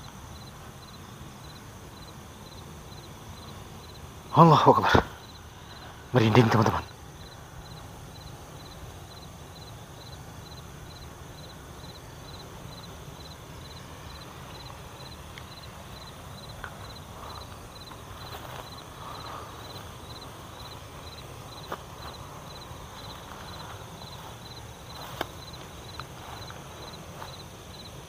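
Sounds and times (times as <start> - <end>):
insect chirping: 0.0 - 28.0
footsteps in dry grass: 14.0 - 28.0.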